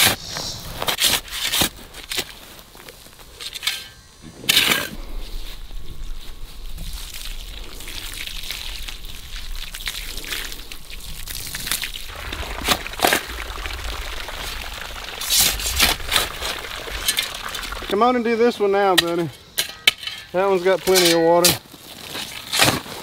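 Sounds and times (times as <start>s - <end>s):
shovel scraping dirt: 0.0s - 2.5s, 3.4s - 5.5s, 19.0s - 23.0s
hose water pouring onto soil: 6.6s - 19.4s.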